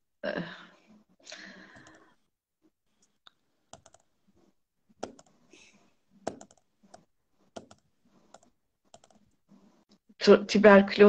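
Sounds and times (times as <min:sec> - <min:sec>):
typing on computer keyboard: 0:03.7 - 0:04.1, 0:05.0 - 0:05.3, 0:06.2 - 0:09.3.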